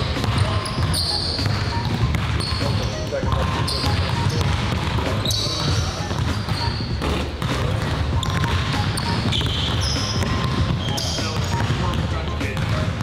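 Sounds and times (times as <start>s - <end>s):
basketball dribbling on hardwood: 0.1s - 13.0s.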